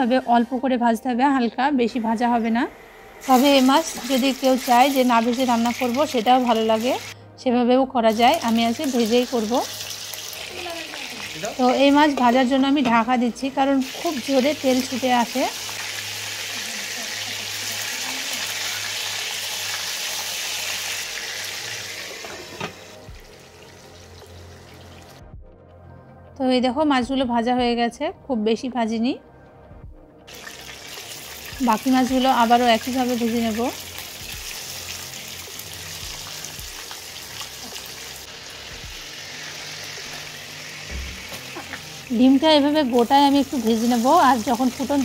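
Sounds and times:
fish sizzling in oil: 0:03.2 - 0:07.2, 0:08.1 - 0:12.6, 0:13.8 - 0:25.2, 0:30.3 - 0:45.0.

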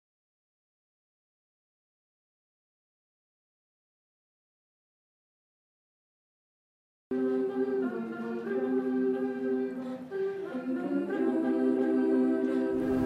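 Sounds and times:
girls' choir singing a cappella: 0:07.1 - 0:13.0.

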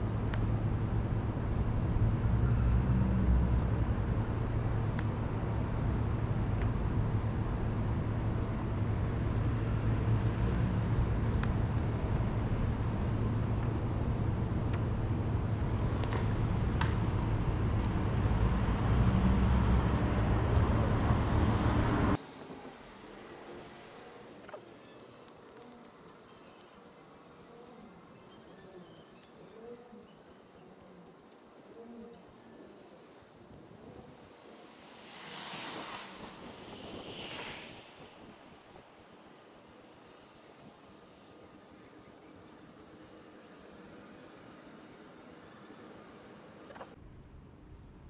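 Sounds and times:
road traffic rumble: 0:00.0 - 0:47.7
vehicle passing: 0:15.4 - 0:24.5, 0:30.9 - 0:46.7
faint clicks: 0:24.2 - 0:33.6.

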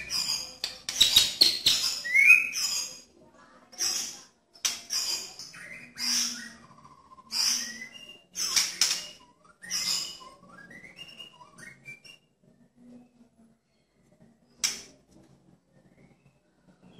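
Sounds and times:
bird whistled notes: 0:05.6 - 0:12.3.

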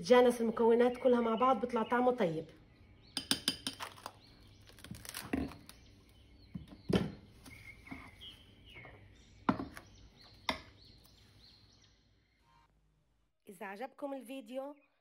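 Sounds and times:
plastic cling film crinkling: 0:03.8 - 0:05.8.

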